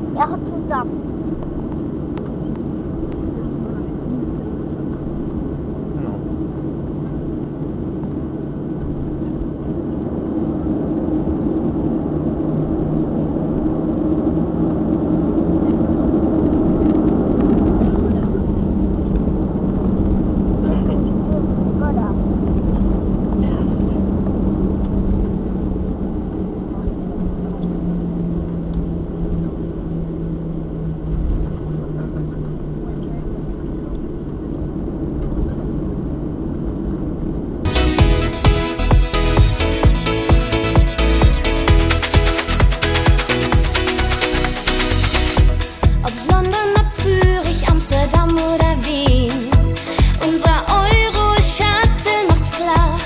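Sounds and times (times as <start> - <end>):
low rumble of jet engines: 0.0 - 39.0, 41.0 - 53.0
thin high whine: 37.6 - 46.7.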